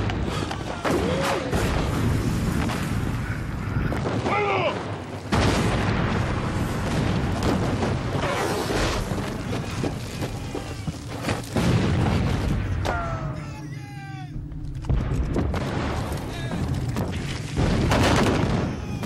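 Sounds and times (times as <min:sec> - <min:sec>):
cannon booms: 0:04.0 - 0:08.2, 0:11.5 - 0:13.4, 0:14.9 - 0:19.0.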